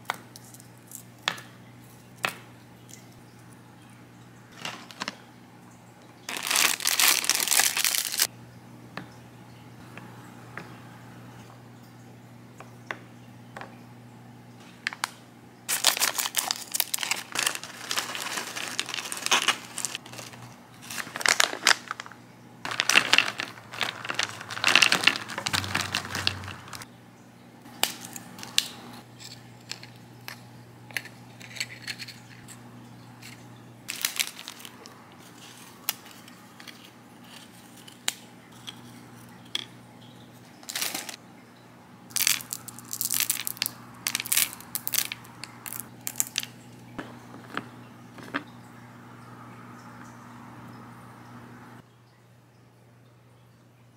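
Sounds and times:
candies clattering onto wood: 6.3 - 8.3, 15.7 - 22.1, 22.7 - 26.8, 33.2 - 36.8, 40.6 - 41.2, 42.1 - 48.5
plastic snack bag crinkling: 6.3 - 8.3, 15.7 - 26.8, 33.2 - 38.9, 40.6 - 41.2, 42.1 - 46.6.

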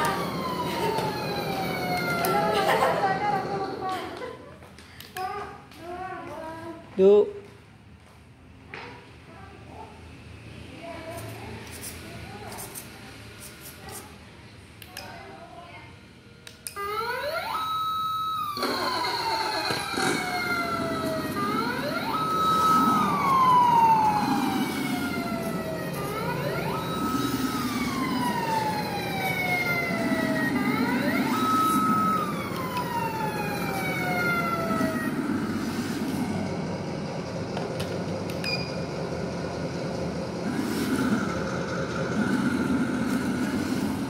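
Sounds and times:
wailing siren: 0.0 - 3.5, 16.7 - 36.7.

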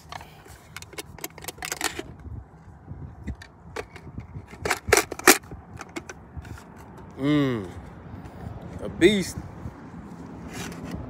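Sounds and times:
magazine handling clicks and knocks: 0.0 - 2.1, 3.3 - 7.1.

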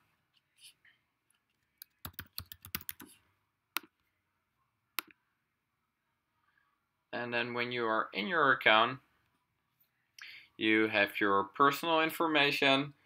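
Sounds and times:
computer keyboard typing: 1.8 - 3.1.

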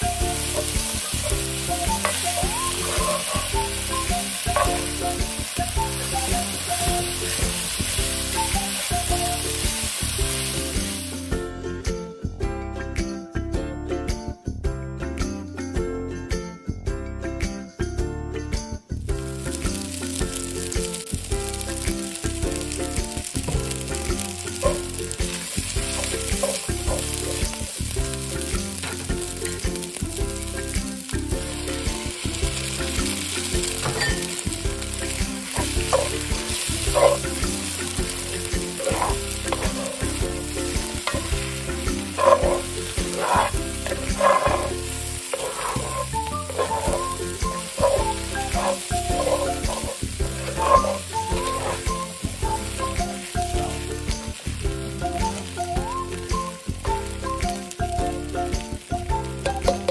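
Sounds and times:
rice sizzling in a pan: 0.0 - 11.4, 19.1 - 59.9
spatula scraping a pan: 0.4 - 5.2, 24.5 - 27.6, 35.1 - 52.1.

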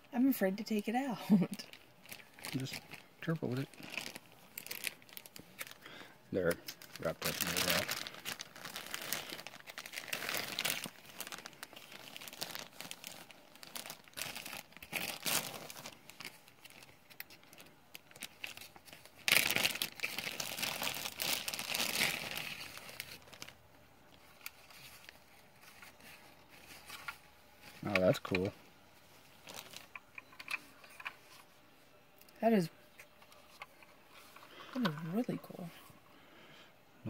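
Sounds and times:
wrapping crumpled and torn: 1.4 - 28.5, 29.3 - 31.4.

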